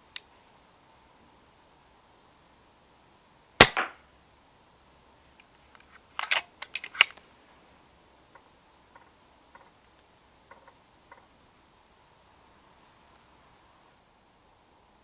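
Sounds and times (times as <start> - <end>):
air rifle shot: 3.6 - 4.0
faint ticks: 8.3 - 11.3.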